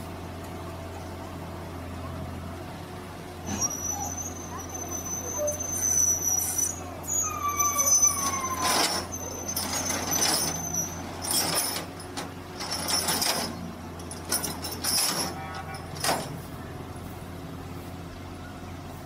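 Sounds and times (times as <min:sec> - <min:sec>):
excavator engine hum: 0:00.0 - 0:19.0
thin metallic squeals: 0:03.4 - 0:16.4.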